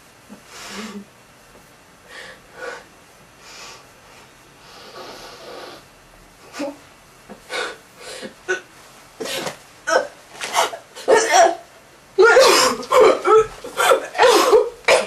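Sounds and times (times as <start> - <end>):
person breathing and sniffing: 4.6 - 5.9.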